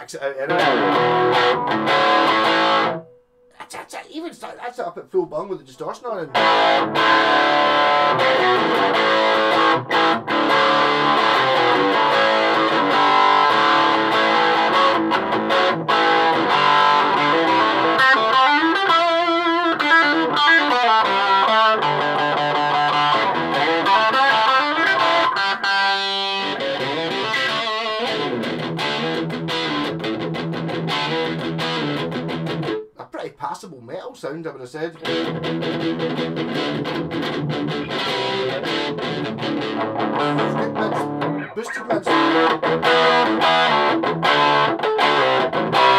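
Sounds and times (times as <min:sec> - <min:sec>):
distorted electric guitar: 0:00.0 - 0:04.6, 0:06.3 - 0:33.0, 0:35.0 - 0:45.9.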